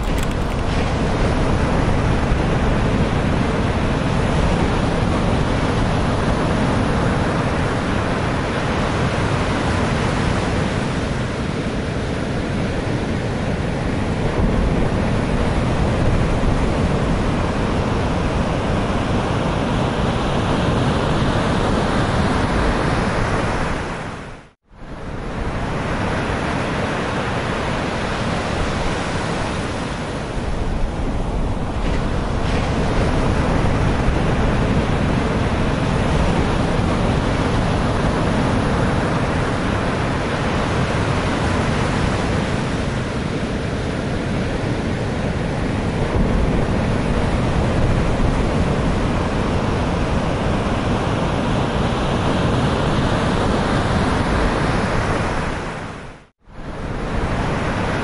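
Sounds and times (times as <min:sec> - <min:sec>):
wind buffeting microphone: 0:00.0 - 0:58.0
surf breaking against seawall: 0:25.9 - 0:55.7.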